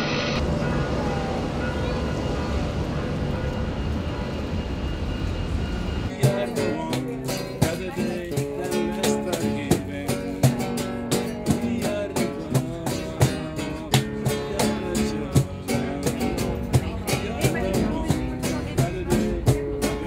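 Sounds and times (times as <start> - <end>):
classical guitar strummed: 6.1 - 20.0
man singing: 6.1 - 20.0.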